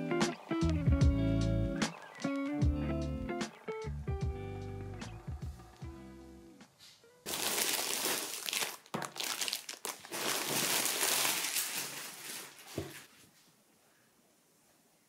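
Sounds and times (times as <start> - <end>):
packaging crinkling and rustling: 7.3 - 13.1.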